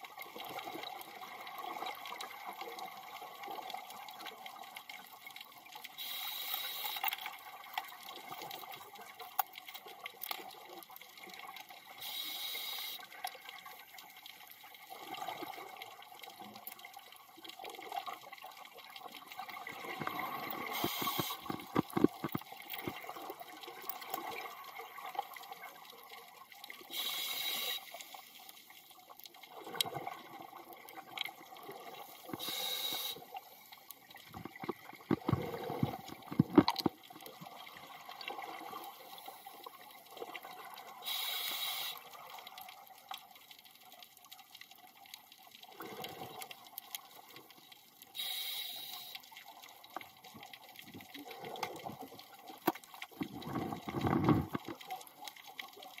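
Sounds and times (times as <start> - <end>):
soft bubbling and clicks: 0.2 - 12.0, 12.9 - 26.9, 28.0 - 41.0, 42.0 - 48.3, 48.9 - 56.0
diver breathing through regulator: 20.6 - 21.5, 32.4 - 33.2
exhaled bubbles bursting: 34.2 - 36.9, 53.1 - 54.8.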